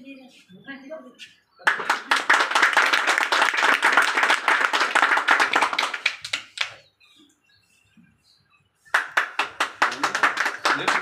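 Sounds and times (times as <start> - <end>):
people clapping: 1.6 - 6.8, 8.9 - 11.0.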